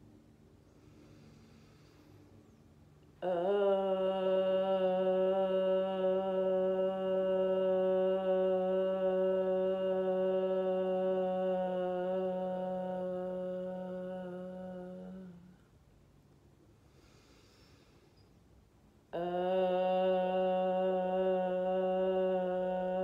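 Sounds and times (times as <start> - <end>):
woman singing a long low note: 3.1 - 15.8, 19.0 - 23.0.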